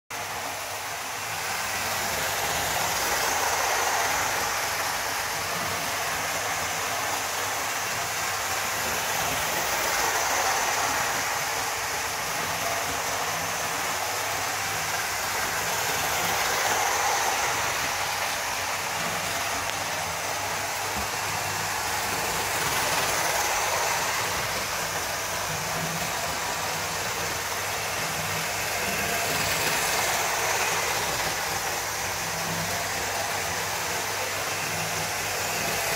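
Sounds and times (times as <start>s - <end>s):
model train motor whir: 0.2s - 35.9s.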